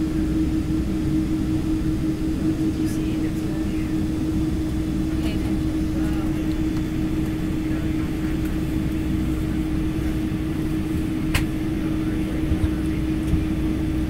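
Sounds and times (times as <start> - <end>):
airliner cabin rumble: 0.0 - 14.0.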